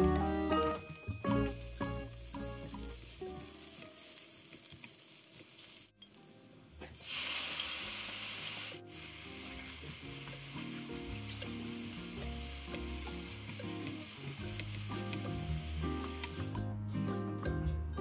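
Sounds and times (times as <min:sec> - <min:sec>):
food sizzling in a frying pan: 0:00.0 - 0:06.0, 0:06.9 - 0:16.6
spatula stirring in a pan: 0:08.9 - 0:16.5.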